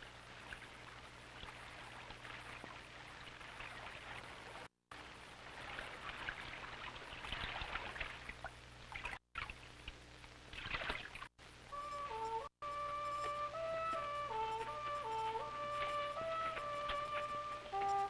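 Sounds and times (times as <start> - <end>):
flute playing held notes: 11.7 - 18.0.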